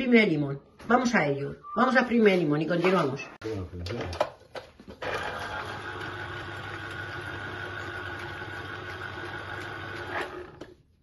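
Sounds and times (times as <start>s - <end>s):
citrus juicer motor humming: 5.0s - 10.8s.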